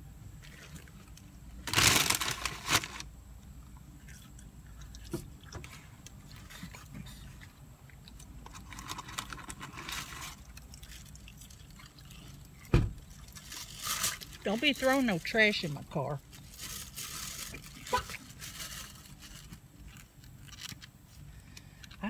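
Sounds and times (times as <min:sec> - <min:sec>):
steady low hum: 0:00.0 - 0:22.0
quiet chewing: 0:00.4 - 0:01.4, 0:03.4 - 0:13.6, 0:19.0 - 0:22.0
paper bag crinkling: 0:00.5 - 0:03.1, 0:08.6 - 0:11.6, 0:13.1 - 0:20.9.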